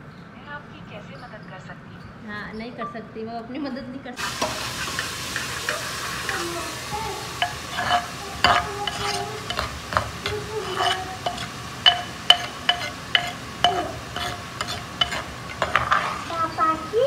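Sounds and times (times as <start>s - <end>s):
frying sizzle: 4.2s - 17.0s
metal ladle clinking in pot: 7.3s - 16.6s.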